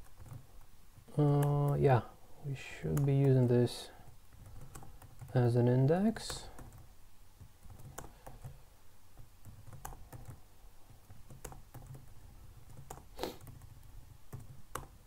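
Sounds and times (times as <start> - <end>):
computer keyboard keystrokes: 0.0 - 0.5, 4.3 - 5.4, 6.2 - 8.6, 9.2 - 15.0.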